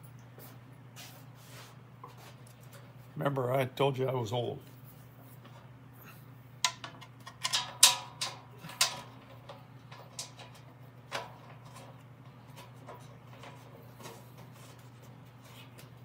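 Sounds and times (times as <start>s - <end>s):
steady low hum: 0.0s - 16.0s
bolts clinking on steel: 6.6s - 12.0s.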